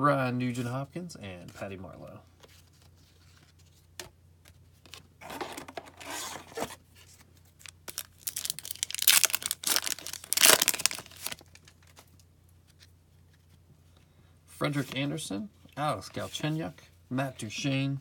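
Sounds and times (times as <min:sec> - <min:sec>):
wrapper tearing and crinkling: 0:07.6 - 0:12.1.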